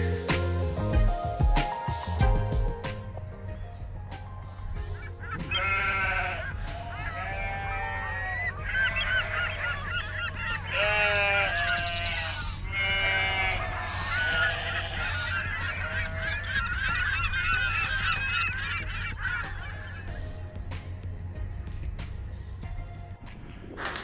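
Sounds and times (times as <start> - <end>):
flock of birds honking: 4.6 - 20.5.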